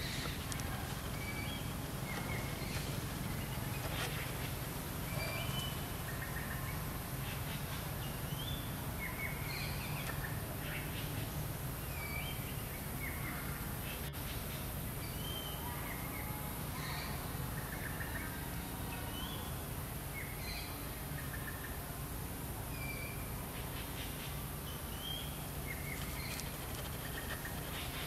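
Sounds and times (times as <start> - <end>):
low outdoor rumble: 0.0 - 15.0, 23.3 - 28.0
wild birds chirping and whistling: 0.0 - 21.8, 22.7 - 28.0.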